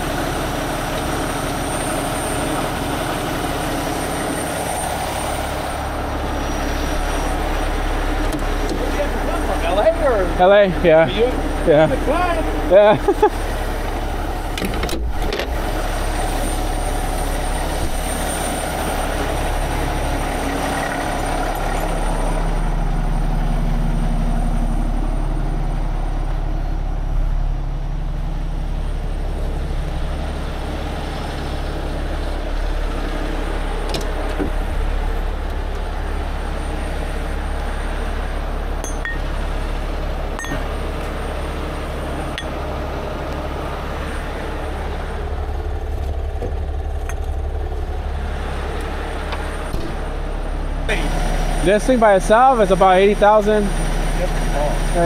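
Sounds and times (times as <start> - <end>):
diesel engine running: 0.0 - 55.0
knocks and clicks of rigging gear: 13.9 - 15.6.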